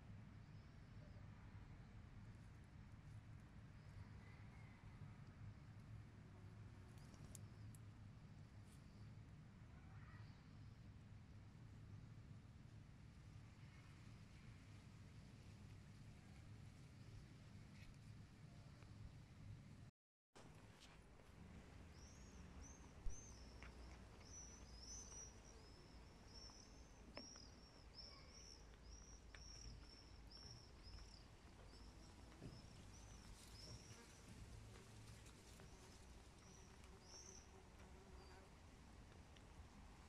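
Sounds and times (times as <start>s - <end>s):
small bird chirping: 21.9s - 34.3s.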